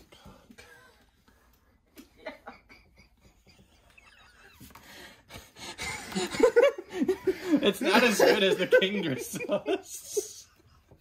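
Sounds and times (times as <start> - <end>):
men laughing: 2.0 - 10.7.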